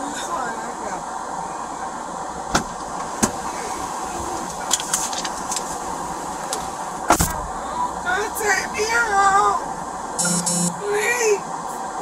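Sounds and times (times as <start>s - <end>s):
car door shutting: 2.5s - 3.4s.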